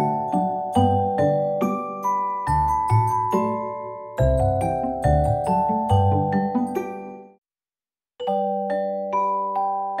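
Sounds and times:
light melody with bass line: 0.0s - 7.2s.

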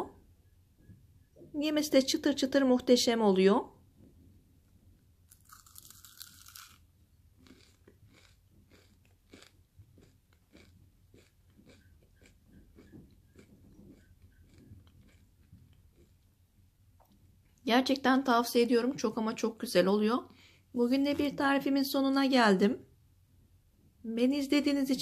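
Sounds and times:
crunchy food chewing: 5.3s - 16.4s.

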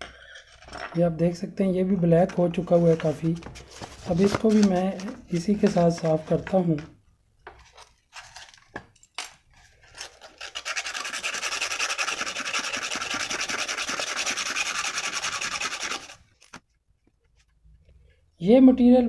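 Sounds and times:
sandpaper rubbing on metal: 10.2s - 16.2s.

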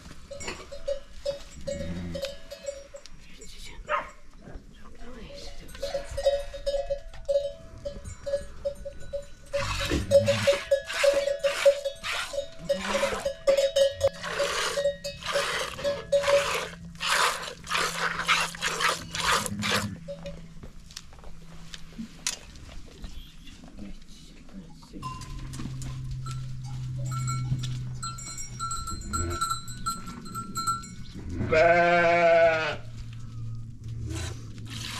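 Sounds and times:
livestock bell clinking: 0.0s - 4.3s, 5.0s - 20.7s, 25.0s - 33.5s.

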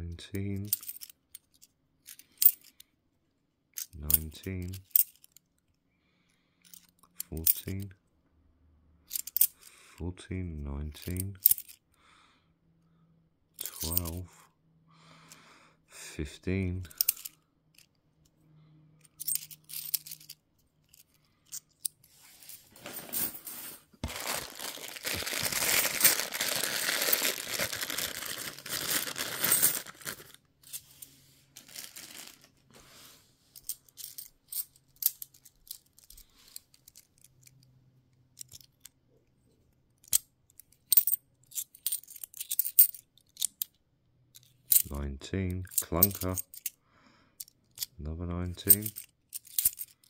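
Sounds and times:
coins clinking: 0.5s - 2.8s, 3.8s - 5.4s, 9.1s - 9.7s, 11.0s - 11.8s, 13.6s - 14.2s, 16.9s - 17.9s, 19.0s - 32.6s, 33.6s - 37.6s, 40.8s - 43.7s, 44.4s - 44.9s, 45.6s - 46.8s, 48.6s - 50.0s
rustling: 22.0s - 34.6s.

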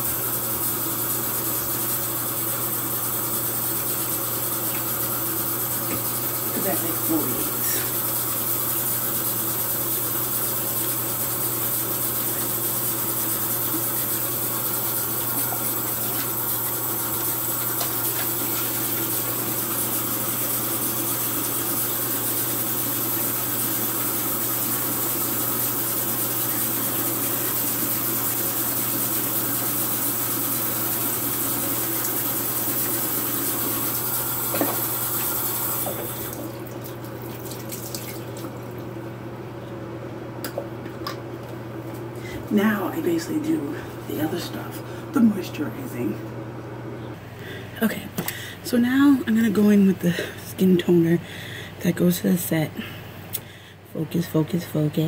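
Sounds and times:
sink tap running: 0.0s - 39.0s
hands rinsing face: 34.8s - 38.8s.

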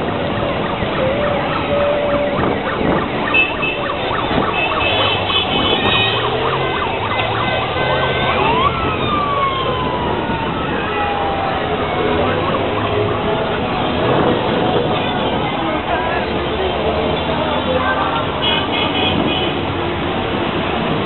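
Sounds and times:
horns tooting: 0.0s - 8.9s, 12.2s - 19.8s
sirens wailing: 0.0s - 21.0s
traffic din: 0.0s - 21.0s.

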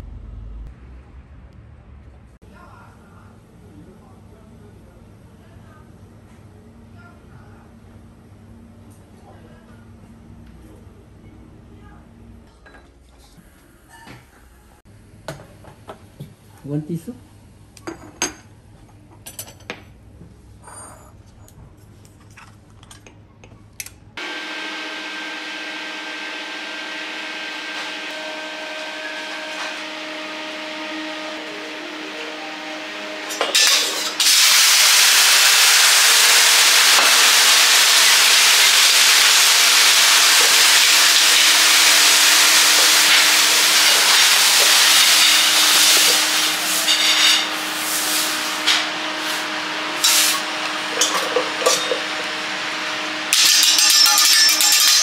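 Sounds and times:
water sizzling on hot griddle: 33.8s - 52.0s
scraping and wiping griddle: 42.6s - 52.0s.

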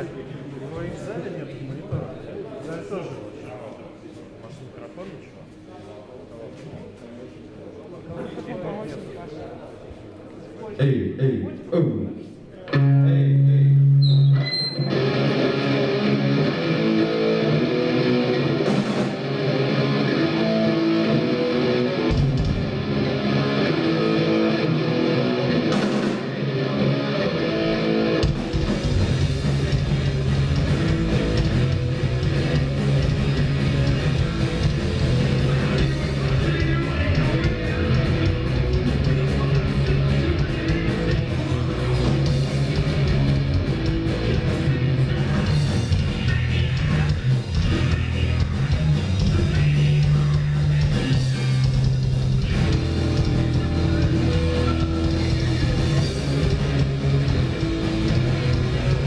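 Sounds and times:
electric guitar riffs: 12.7s - 59.0s
rock band playing: 12.7s - 59.0s.

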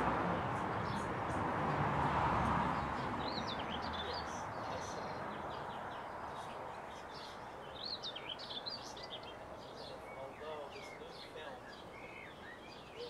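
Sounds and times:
goldfinch twittering chirps: 2.8s - 13.0s.

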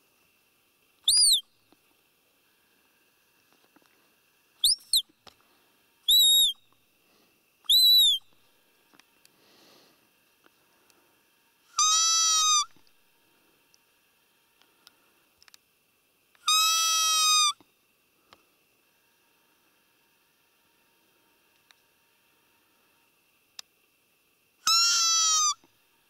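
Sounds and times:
high-pitched deer call peeps: 1.1s - 1.6s, 7.7s - 8.4s, 11.7s - 12.9s, 16.4s - 17.6s, 24.6s - 25.7s
long low deer calls: 11.7s - 12.8s, 16.5s - 17.6s, 24.7s - 25.7s.

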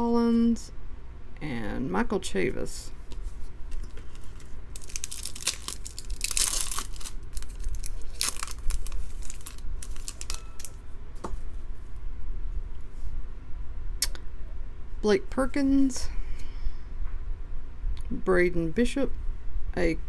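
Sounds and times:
foil wrapper tearing and crinkling: 3.8s - 10.8s.

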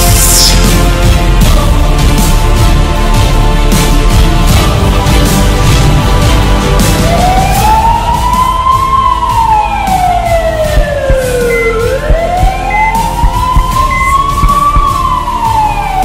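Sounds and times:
music beat: 0.0s - 16.0s
wailing siren: 6.8s - 16.0s.

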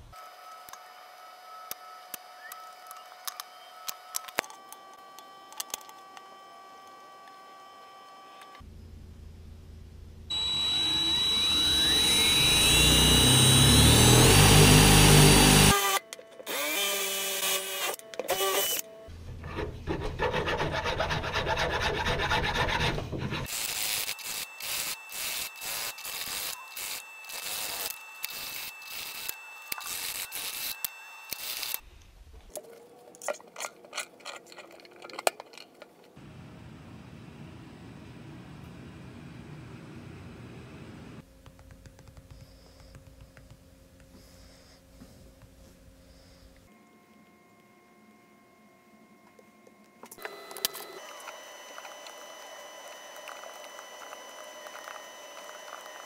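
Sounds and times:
rising whine: 7.5s - 15.8s
hand tool rasping on wood: 19.6s - 23.5s.

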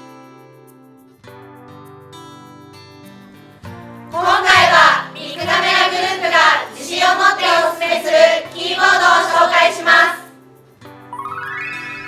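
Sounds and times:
women singing in unison: 4.2s - 10.3s.

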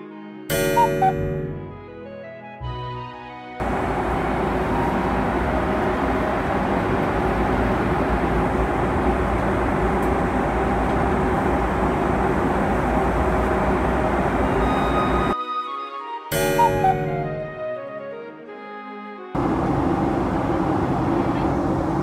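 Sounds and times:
airliner cabin airflow and drone: 3.6s - 15.4s, 16.4s - 17.7s, 19.4s - 22.0s.

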